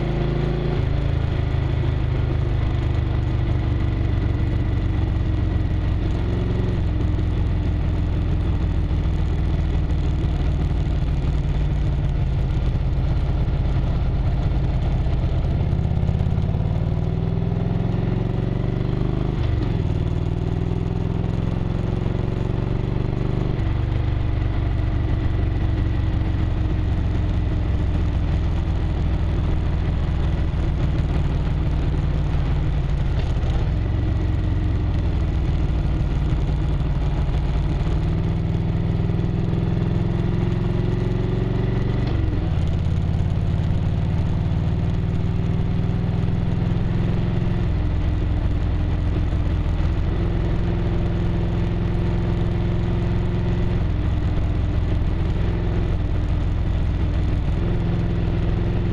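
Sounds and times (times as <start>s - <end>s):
motorcycle engine running: 0.0s - 58.9s.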